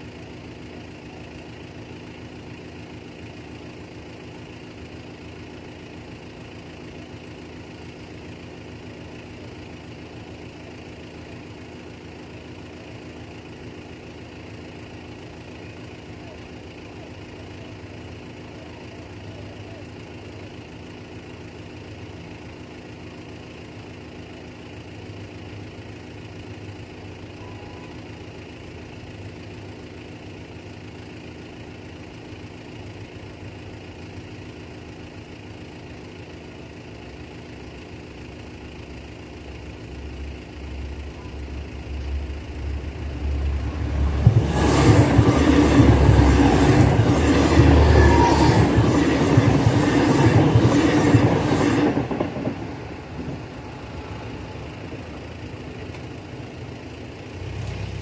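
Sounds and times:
steady low hum: 38.1 - 57.1
train passing at speed: 40.0 - 56.3.

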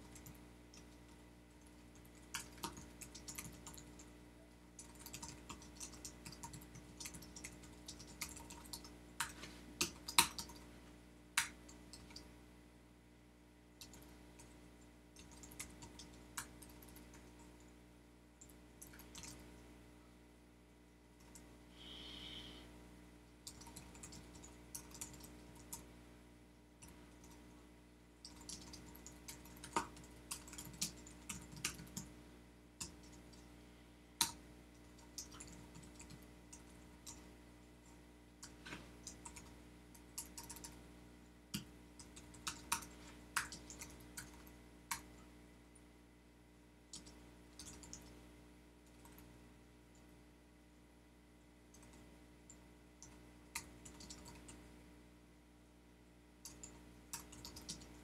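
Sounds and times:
computer keyboard typing: 0.0 - 4.1, 4.8 - 10.7, 15.2 - 17.5, 18.4 - 19.4, 23.4 - 25.9, 28.2 - 32.1, 34.2 - 37.3, 38.4 - 40.8, 41.5 - 45.2, 46.9 - 48.2, 51.7 - 54.6, 56.4 - 58.0
low electrical hum: 0.0 - 58.0.

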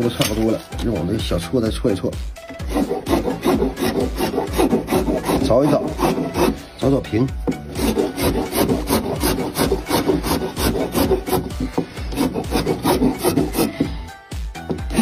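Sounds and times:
hand file rasping on wood: 2.5 - 6.8, 7.4 - 15.0.

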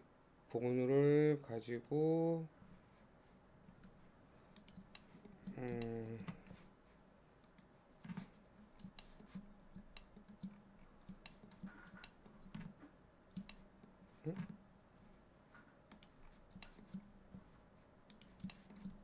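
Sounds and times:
computer mouse and keyboard clicks: 3.7 - 6.7, 7.4 - 19.0
person humming: 5.4 - 6.6, 14.2 - 14.5.

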